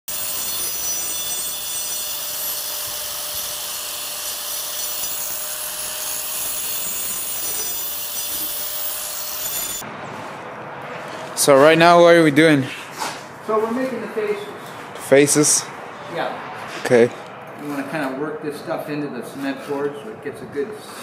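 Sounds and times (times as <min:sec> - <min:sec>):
angle grinder cutting brick: 0:00.1 - 0:09.8.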